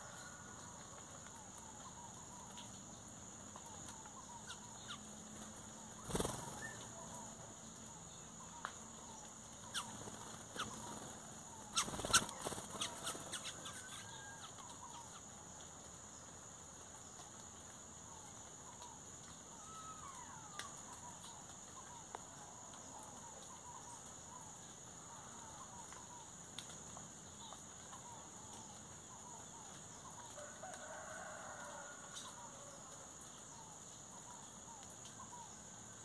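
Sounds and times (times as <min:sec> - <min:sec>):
small birds chirping: 0:03.4 - 0:22.2
bird wings flapping: 0:05.4 - 0:06.9, 0:09.8 - 0:13.5.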